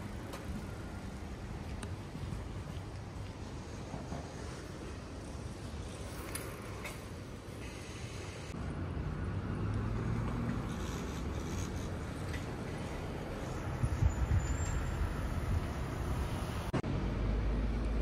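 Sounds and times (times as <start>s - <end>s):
road traffic rumble: 0.0s - 18.0s
vehicle passing: 8.6s - 18.0s.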